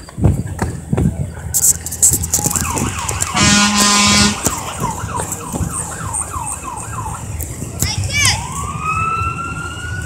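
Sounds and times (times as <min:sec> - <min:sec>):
fire truck horn blast: 0:03.3 - 0:04.6.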